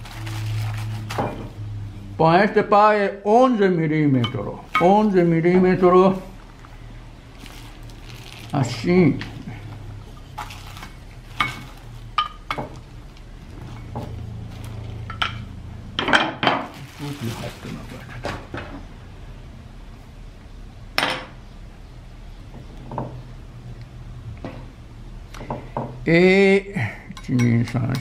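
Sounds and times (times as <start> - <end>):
low steady hum: 0.0 - 28.0
pottery tools knocking and clinking: 4.2 - 5.2, 11.4 - 12.8, 15.1 - 16.7, 21.0 - 21.4, 27.2 - 28.0.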